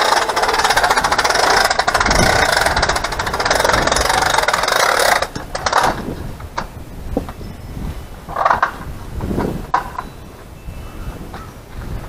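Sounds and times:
small electric motor gear rattle: 0.0 - 6.7.

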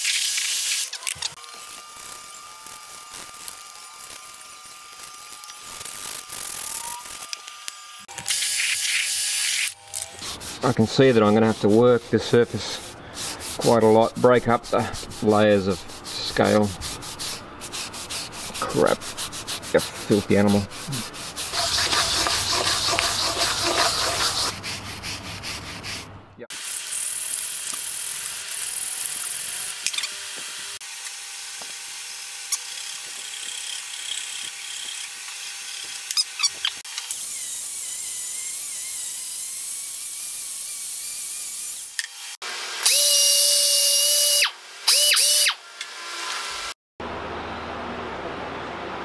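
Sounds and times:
power tool running: 0.7 - 10.8, 19.8 - 24.5, 26.5 - 46.8
abrasive pad rubbing metal: 10.1 - 26.1.

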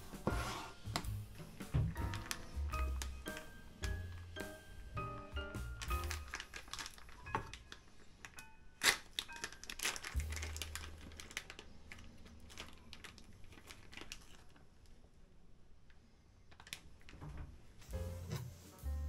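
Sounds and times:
plastic tearing: 1.9 - 3.5, 5.8 - 14.8, 16.5 - 17.2
plastic pouch crinkling: 1.9 - 4.3, 5.6 - 15.0, 16.5 - 17.2.

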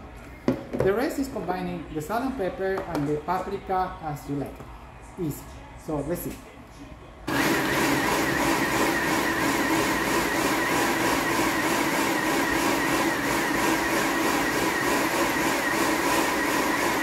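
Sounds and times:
food processor motor whining: 7.3 - 17.0.

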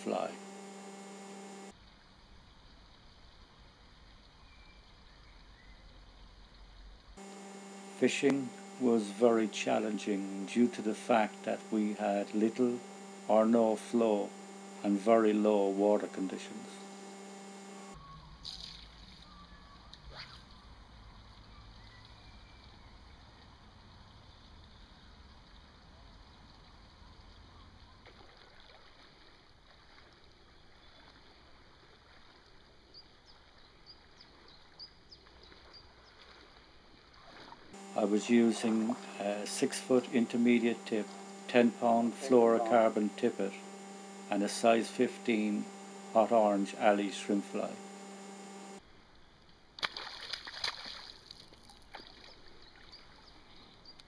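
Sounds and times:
faint river hiss: 0.0 - 25.4, 28.2 - 53.8
water noise: 0.0 - 54.0
fish splashing at surface: 49.8 - 52.5.

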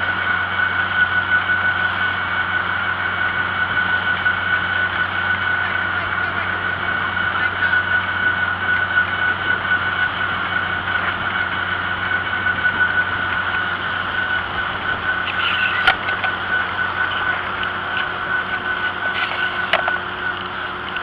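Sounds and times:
high-pitched whine: 0.0 - 21.0
tractor engine running: 0.0 - 21.0.

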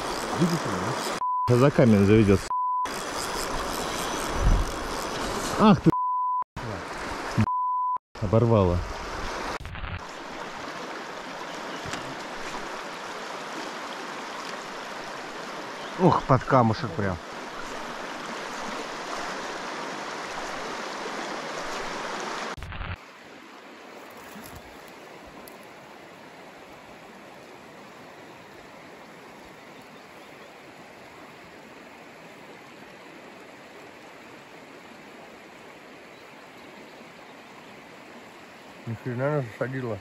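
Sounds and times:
river rapids rushing: 0.0 - 2.3
flowing river water: 0.0 - 6.0, 6.6 - 7.6, 8.2 - 40.0.

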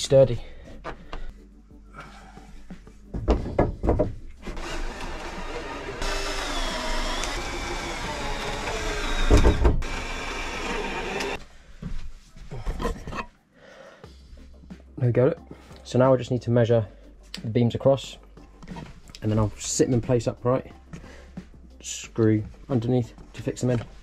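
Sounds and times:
wood knocks: 3.2 - 4.2
cordless drill motor whine: 4.6 - 11.4.

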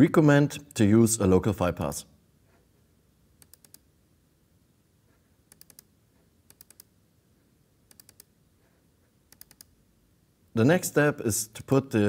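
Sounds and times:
computer mouse double-clicking: 3.4 - 3.8, 5.5 - 5.9, 6.5 - 6.9, 7.9 - 8.3, 9.3 - 9.7.

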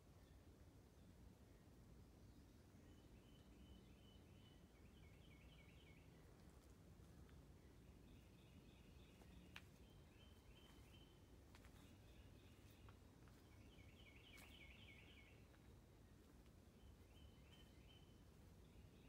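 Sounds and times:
low background hiss: 0.0 - 19.0
bird chirping: 2.3 - 6.4, 7.6 - 15.7, 16.7 - 19.0.

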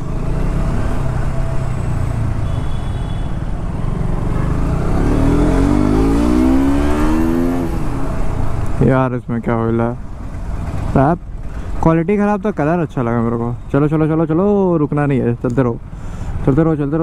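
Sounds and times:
motorcycle engine accelerating: 3.4 - 8.8.

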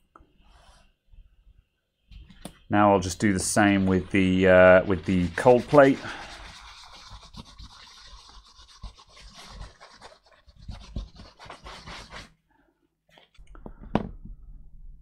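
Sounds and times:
towel scrubbing metal plate: 3.0 - 12.3.

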